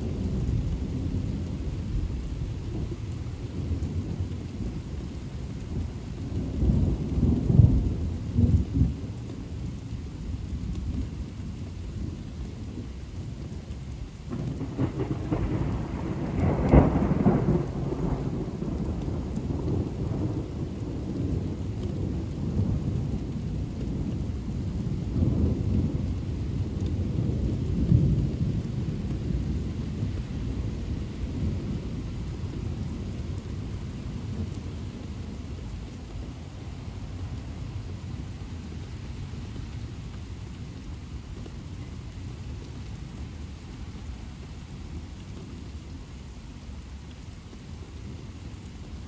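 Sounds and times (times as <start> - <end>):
steady rain: 0.0 - 49.0
thunder rumbling: 14.2 - 49.0.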